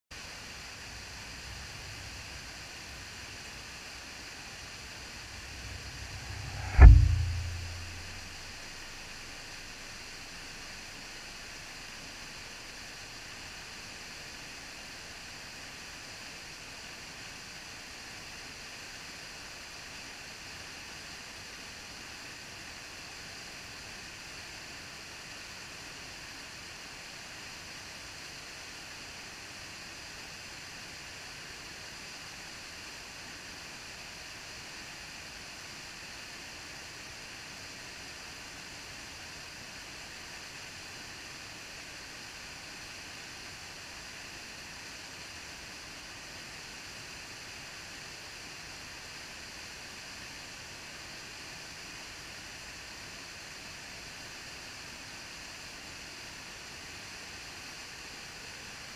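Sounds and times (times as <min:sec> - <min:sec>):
small waterfall rushing: 0:00.2 - 0:04.9, 0:09.9 - 0:58.9.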